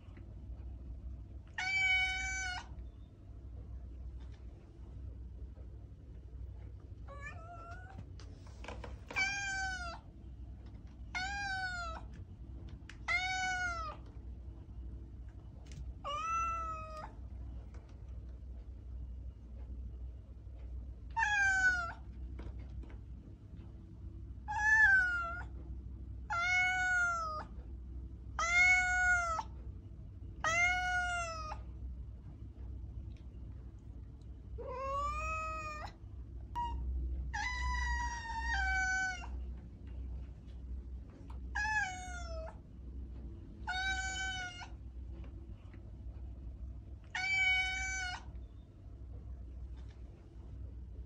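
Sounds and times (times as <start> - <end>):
faint low hum: 0.0 - 51.0
cat meowing: 1.5 - 2.8, 7.1 - 8.0, 9.1 - 10.1, 11.1 - 12.1, 13.0 - 14.1, 16.0 - 17.2, 21.2 - 22.0, 24.5 - 25.6, 26.3 - 27.5, 28.4 - 29.5, 30.4 - 31.6, 34.6 - 36.0, 36.6 - 39.4, 41.5 - 42.6, 43.6 - 44.8, 47.1 - 48.4.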